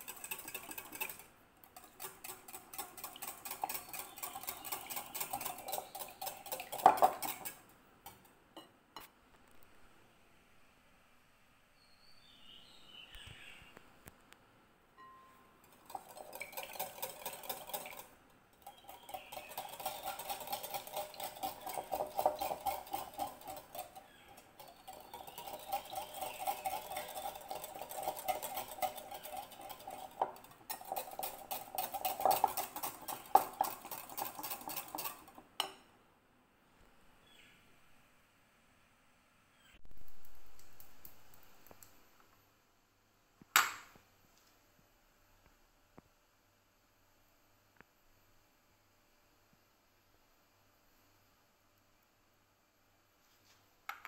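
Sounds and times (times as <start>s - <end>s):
whisk swishing through liquid: 0.0s - 8.2s, 15.6s - 35.7s
whisk clinking against glass bowl: 0.0s - 8.7s, 15.0s - 35.8s.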